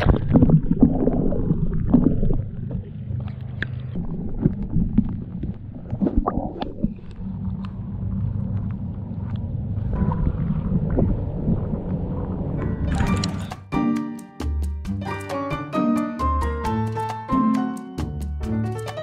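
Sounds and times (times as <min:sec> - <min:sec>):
water gurgling and sloshing: 0:00.0 - 0:13.7
small clicks and splashes: 0:01.9 - 0:09.5.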